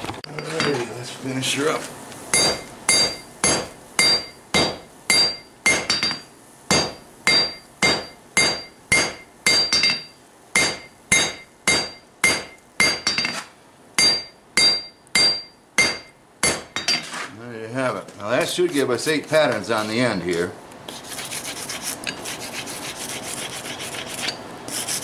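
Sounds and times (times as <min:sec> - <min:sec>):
hammer striking hot steel on anvil: 0:02.3 - 0:17.2.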